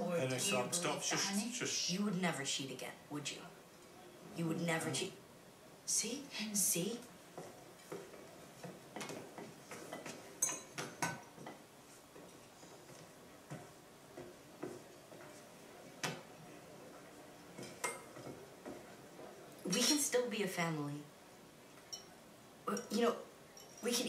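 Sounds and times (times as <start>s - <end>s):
cutlery and dishes clinking: 7.4s - 11.6s, 17.6s - 18.9s, 21.8s - 22.2s, 23.6s - 24.0s.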